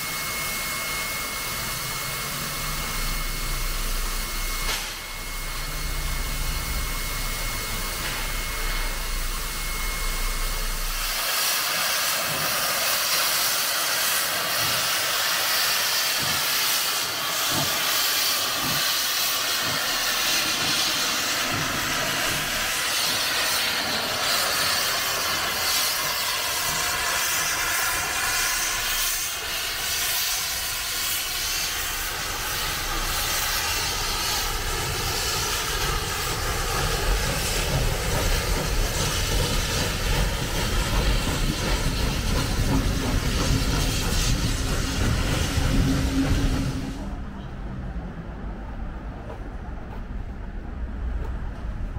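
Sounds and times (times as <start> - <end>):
steam hissing: 0.0 - 47.3
low rumble: 1.3 - 11.3.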